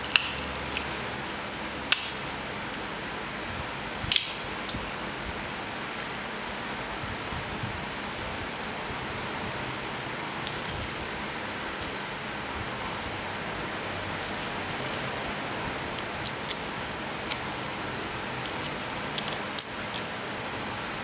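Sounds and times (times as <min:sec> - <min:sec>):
small parts clicking: 0:11.7 - 0:17.8, 0:18.4 - 0:20.6.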